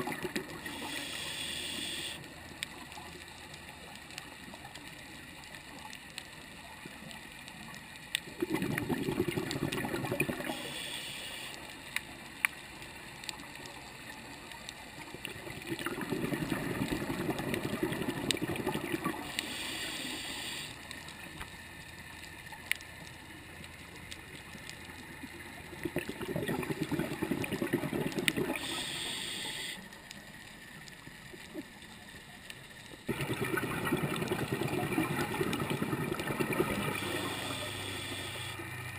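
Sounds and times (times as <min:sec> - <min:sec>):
faint clicks: 0:00.2 - 0:08.4, 0:09.7 - 0:16.0, 0:18.2 - 0:26.1, 0:28.1 - 0:33.1
regulator hiss: 0:00.6 - 0:02.3, 0:10.4 - 0:11.8, 0:19.2 - 0:20.9, 0:28.5 - 0:30.0, 0:36.7 - 0:38.7
diver exhaling bubbles: 0:08.4 - 0:10.7, 0:15.4 - 0:19.3, 0:25.8 - 0:29.1, 0:33.1 - 0:38.5.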